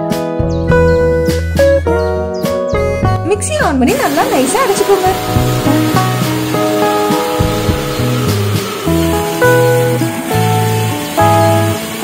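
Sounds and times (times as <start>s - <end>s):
background music simple tune: 0.0s - 12.0s
mixer grinder whirring: 3.9s - 12.0s.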